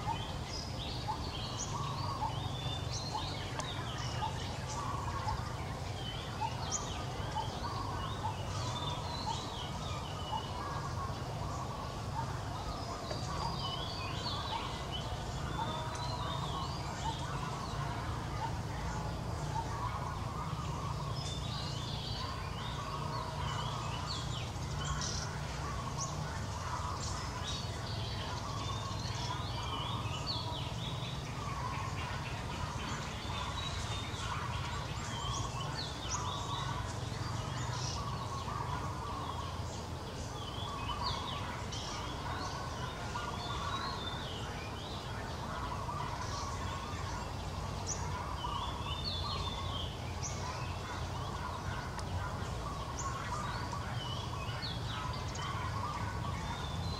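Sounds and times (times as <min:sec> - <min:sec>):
birds chirping: 0:00.0 - 0:56.9.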